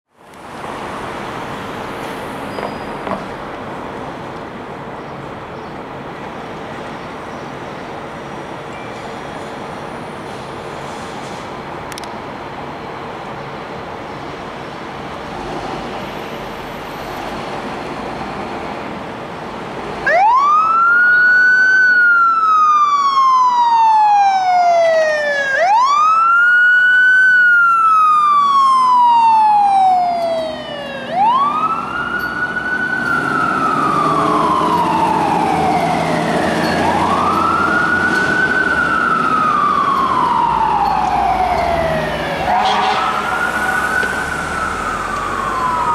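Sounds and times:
idling engines and traffic rumble: 0.1s - 45.9s
fire siren wailing: 20.0s - 45.9s.

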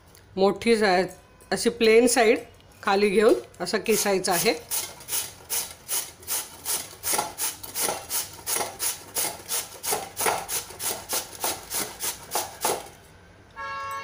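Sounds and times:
potato rasping on metal grater: 3.8s - 12.8s.

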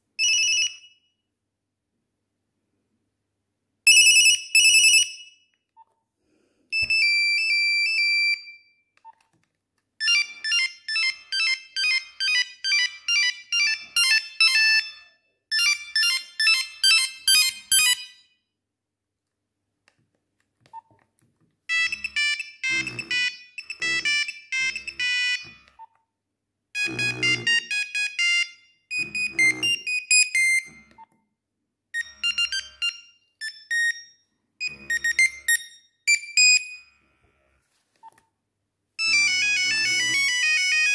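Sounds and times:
monophonic phone ringtones: 0.2s - 1.0s, 3.9s - 5.2s, 10.0s - 18.2s, 21.7s - 25.9s, 26.8s - 31.1s, 32.0s - 36.9s, 39.0s - 40.9s.

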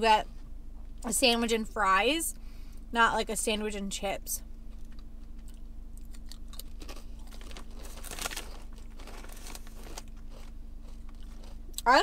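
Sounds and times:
chip bag crinkling: 4.7s - 11.6s
crunching potato chips: 4.7s - 12.0s.

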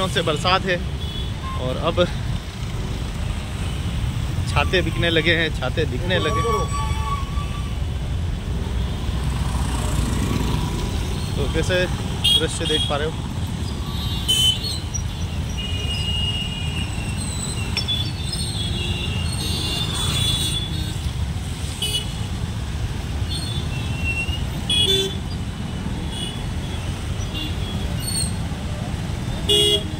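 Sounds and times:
traffic rumble: 0.0s - 29.9s
horn toots: 6.0s - 7.8s.

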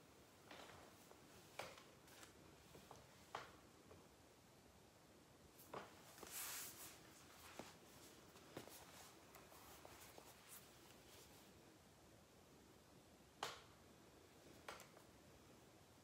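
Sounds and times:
soft rustle: 0.2s - 3.6s, 5.5s - 11.8s.

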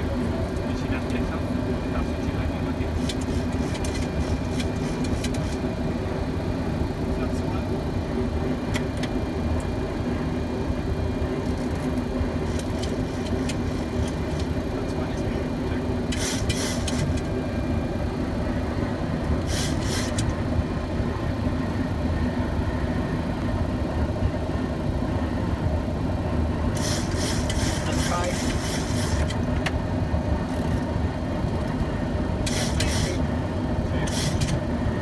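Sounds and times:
airflow and engine drone: 0.0s - 35.0s
steady low hum: 0.0s - 35.0s
short bursts of hiss: 26.8s - 29.2s.

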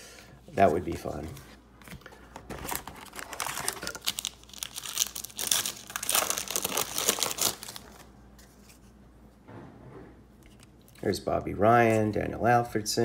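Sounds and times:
foil wrapper crinkling and tearing: 2.6s - 8.1s.

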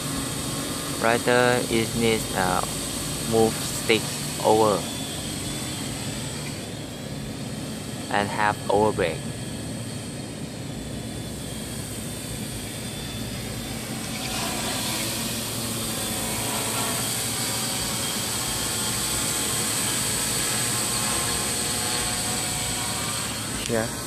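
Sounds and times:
drone motors buzzing: 0.0s - 24.0s.

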